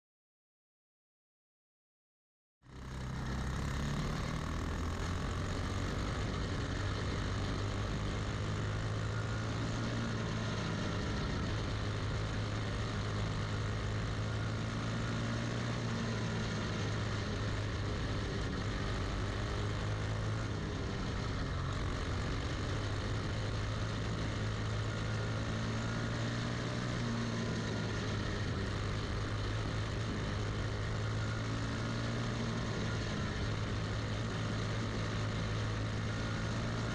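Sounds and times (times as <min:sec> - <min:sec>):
kart engine running at speed: 0:02.6 - 0:36.9.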